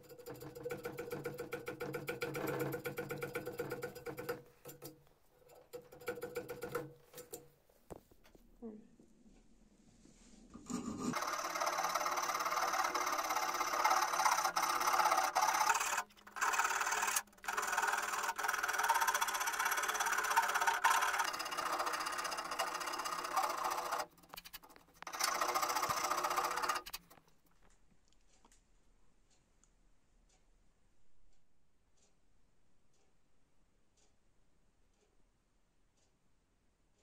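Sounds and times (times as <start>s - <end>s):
hand file rasping on wood: 10.7s - 24.1s.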